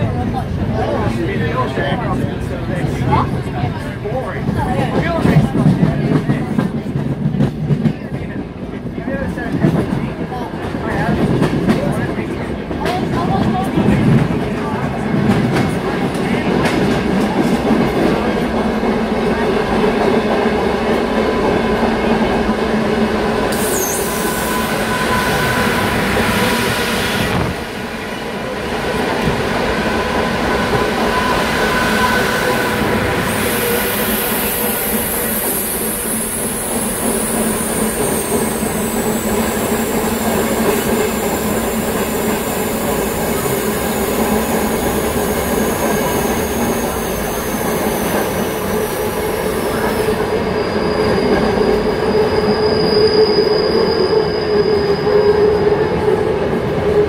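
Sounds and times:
train wheels rumbling on rails: 0.0s - 57.0s
high wheel squeal: 23.5s - 27.5s, 29.9s - 44.1s, 45.4s - 56.2s.

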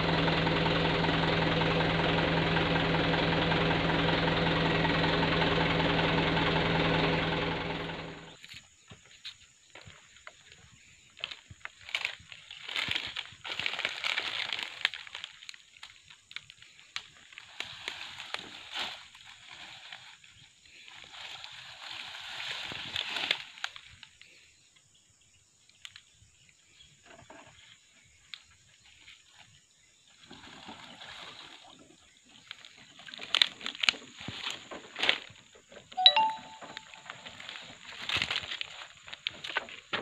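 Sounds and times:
dry palm fronds rustling: 10.9s - 24.4s, 30.2s - 35.7s, 37.1s - 40.0s
short ringing ding: 36.0s - 37.0s.

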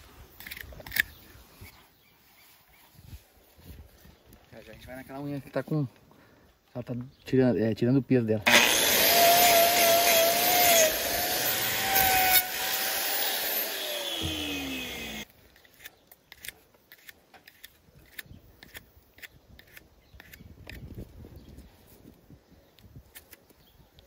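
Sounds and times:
angle grinder whining: 8.5s - 15.3s.

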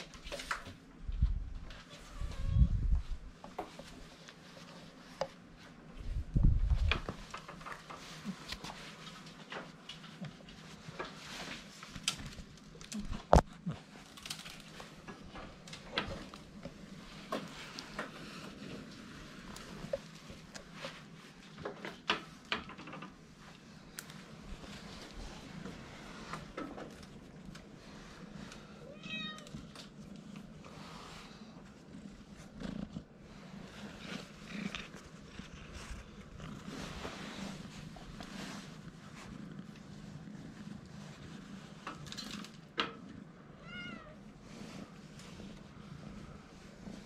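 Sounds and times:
kitten purring: 29.7s - 43.8s
fur and clothing rustling: 30.2s - 41.8s.

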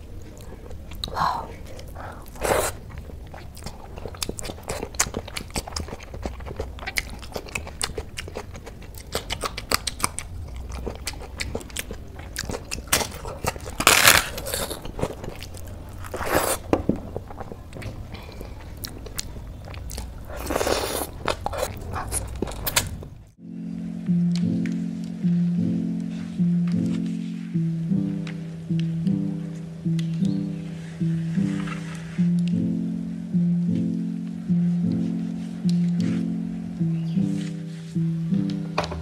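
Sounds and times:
person chewing and crunching food: 0.0s - 23.4s.

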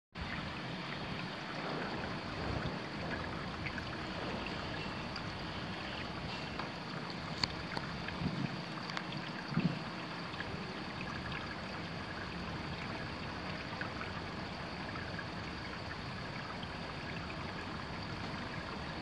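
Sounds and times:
water rushing in tank: 0.2s - 19.0s
faint ticks: 6.3s - 9.8s.

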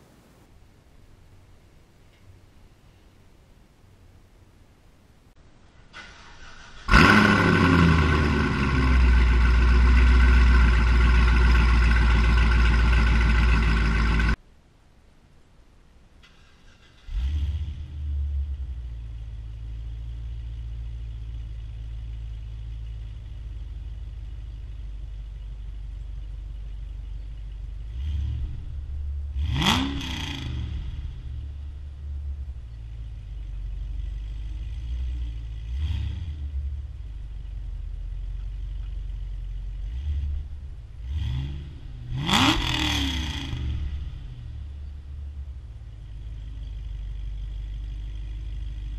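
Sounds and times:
car engine idling and revving: 6.0s - 14.4s, 16.2s - 48.9s.

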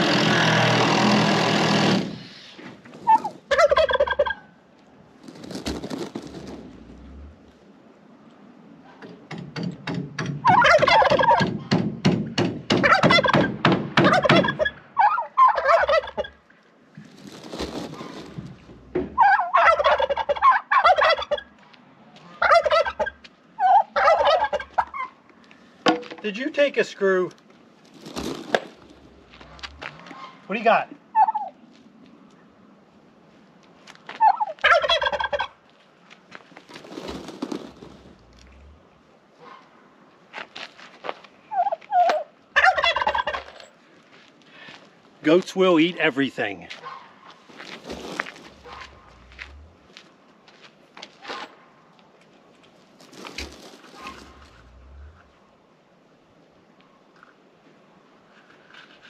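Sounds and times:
turkey gobbling: 3.0s - 4.6s, 10.4s - 11.6s, 12.8s - 16.5s, 17.2s - 18.4s, 19.2s - 21.6s, 22.3s - 25.2s, 29.4s - 30.5s, 31.1s - 31.6s, 34.2s - 35.6s, 41.5s - 43.6s, 46.7s - 49.7s, 53.0s - 54.6s
sharp knocks and clicks: 9.0s - 10.5s, 11.4s - 14.4s.

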